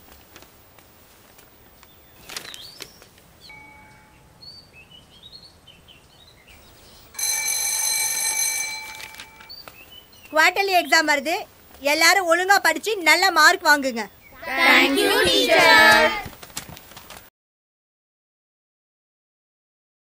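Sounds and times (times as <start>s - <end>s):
electric school bell ringing: 3.5s - 4.3s, 7.2s - 9.5s.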